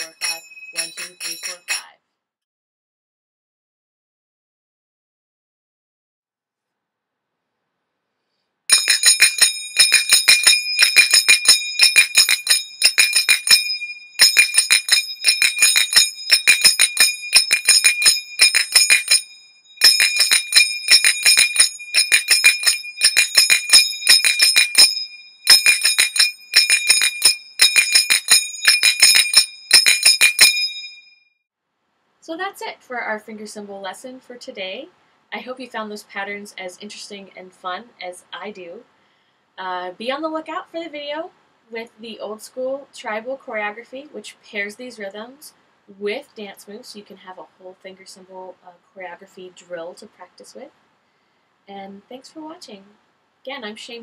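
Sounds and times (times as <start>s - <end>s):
finger cymbals ringing: 0.0s - 1.9s, 8.7s - 31.1s.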